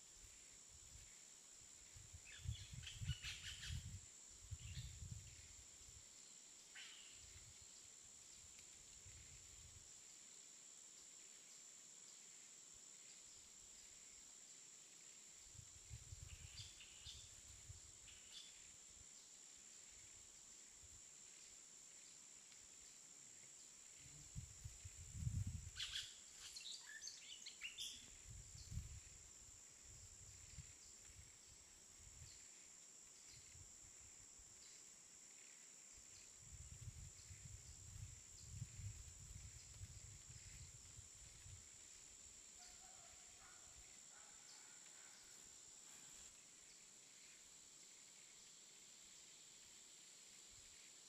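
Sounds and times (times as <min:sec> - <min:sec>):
steady high hiss: 0:00.0 - 0:51.0
wind gusting on microphone: 0:02.1 - 0:05.4, 0:24.4 - 0:25.8, 0:36.4 - 0:41.6.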